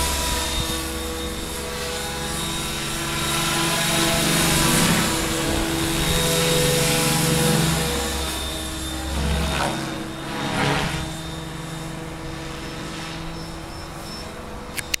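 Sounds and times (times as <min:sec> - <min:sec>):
model helicopter motor whine: 0:00.0 - 0:15.0
sharp clicks: 0:14.7 - 0:15.0.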